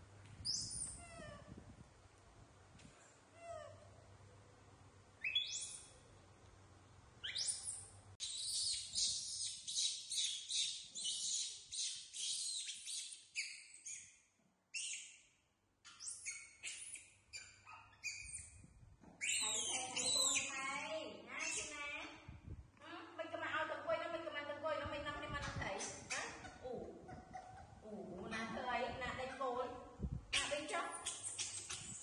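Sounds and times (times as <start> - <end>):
young monkey squealing: 5.2 - 5.9, 7.2 - 14.1, 14.8 - 15.1, 15.9 - 18.6, 19.2 - 20.7, 25.7 - 27.8, 30.4 - 32.0.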